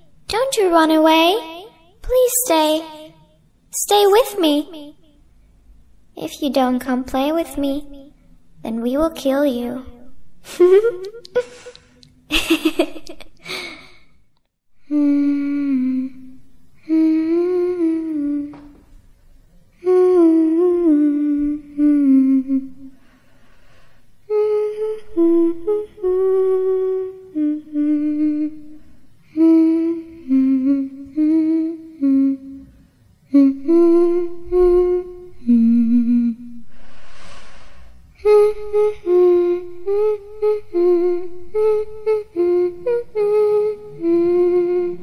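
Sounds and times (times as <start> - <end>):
person humming a slow tune: 10.4 - 12.0, 14.8 - 18.9, 19.7 - 23.1, 23.7 - 45.0
breathy hiss: 36.7 - 38.2.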